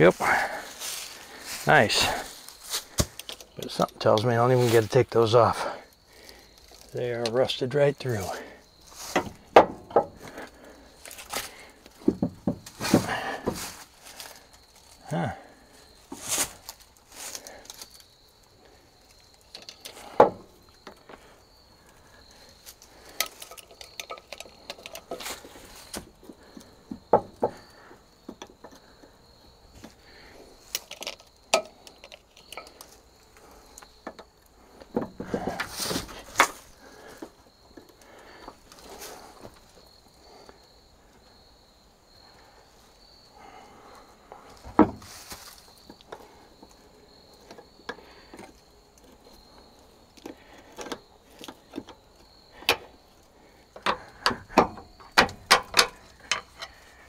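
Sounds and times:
insect trill: 0.0 - 57.0
hand tools clinking on metal: 53.8 - 57.0.

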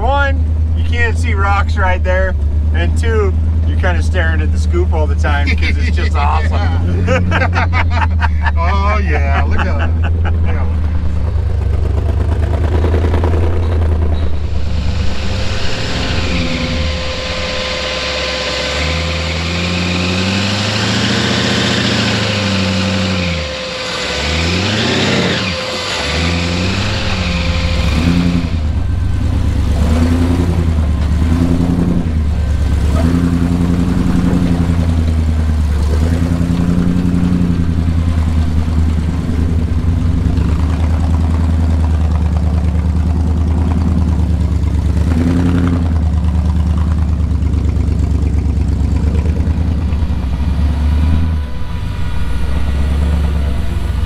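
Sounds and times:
truck engine revving: 0.0 - 54.0.

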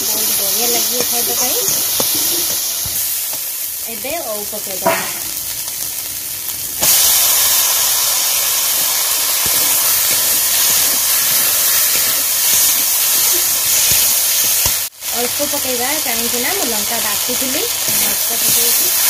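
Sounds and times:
food sizzling in hot oil: 0.0 - 19.0.

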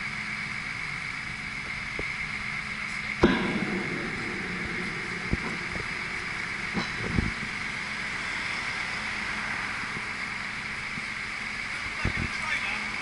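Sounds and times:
crane diesel engine running: 0.0 - 13.0
high hiss: 0.1 - 13.0
low thumps: 3.2 - 11.7.

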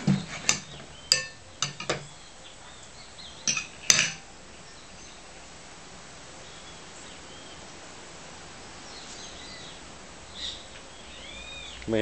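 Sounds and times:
knife and fork clinking on plate: 0.4 - 2.1, 3.5 - 4.2.

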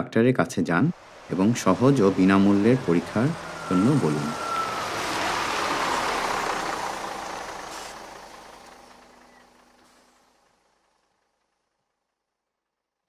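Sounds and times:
vehicle passing: 0.9 - 10.5.

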